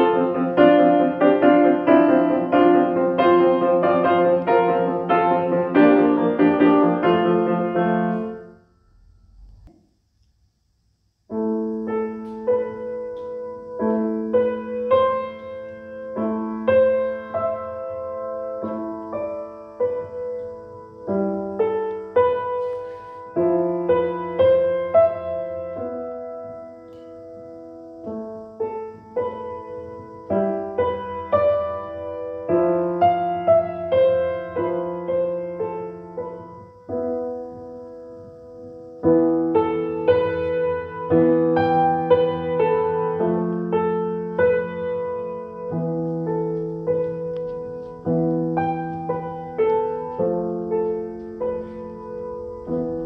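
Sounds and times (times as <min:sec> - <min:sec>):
upright piano playing: 0:00.0 - 0:08.6, 0:11.3 - 0:53.0.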